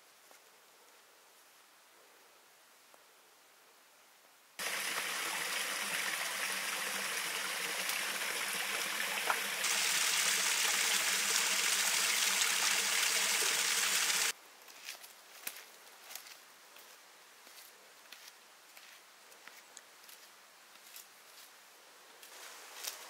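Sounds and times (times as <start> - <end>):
water running: 4.6 - 14.3.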